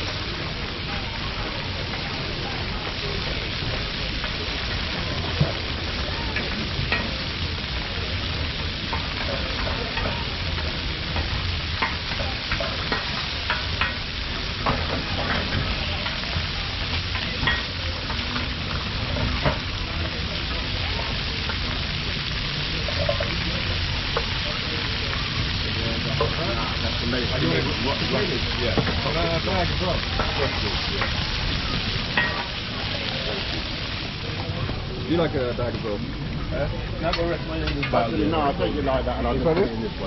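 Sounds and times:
chicken sizzling on a griddle: 0:00.0 - 0:40.0.

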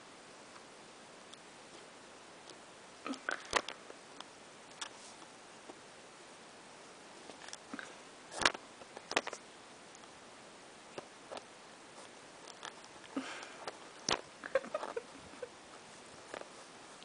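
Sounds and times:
soft rustling: 0:04.7 - 0:05.9, 0:10.9 - 0:17.0.

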